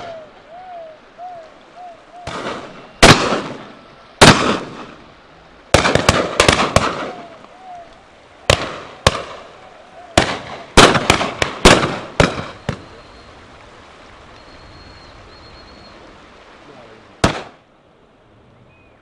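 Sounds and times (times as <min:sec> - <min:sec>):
shotguns firing: 0:02.2 - 0:05.0, 0:05.7 - 0:07.3, 0:08.5 - 0:09.5, 0:10.2 - 0:12.9, 0:17.2 - 0:17.6.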